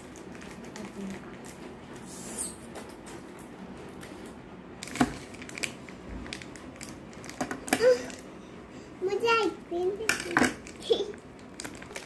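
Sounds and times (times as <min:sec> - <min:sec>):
plastic packet crinkling: 0:00.0 - 0:01.7, 0:04.8 - 0:08.2, 0:10.2 - 0:12.0.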